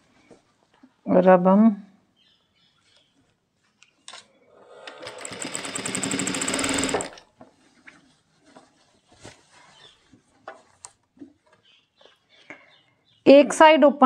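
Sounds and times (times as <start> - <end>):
sewing machine stitching: 4.6 - 7.3.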